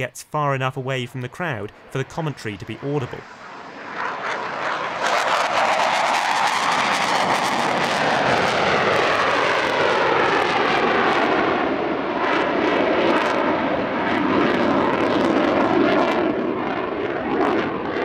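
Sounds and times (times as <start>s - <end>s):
jet roar: 0.0s - 18.0s.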